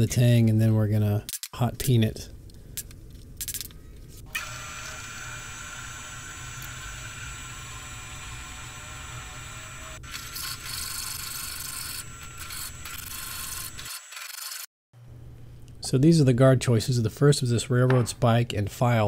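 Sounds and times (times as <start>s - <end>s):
drill press boring into steel: 4.3s - 14.7s.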